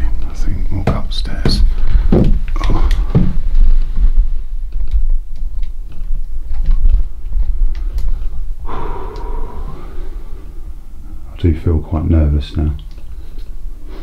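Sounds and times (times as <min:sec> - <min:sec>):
breathy exhale: 0:08.6 - 0:11.3.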